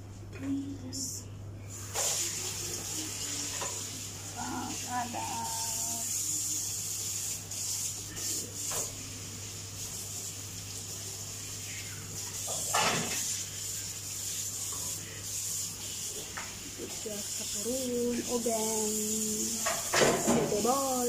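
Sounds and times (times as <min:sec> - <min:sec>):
steady hum: 0:00.0 - 0:21.0.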